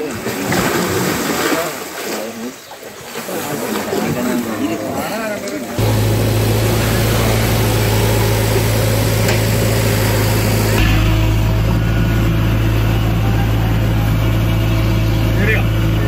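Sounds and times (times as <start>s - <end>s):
diesel engine droning: 5.8s - 16.0s.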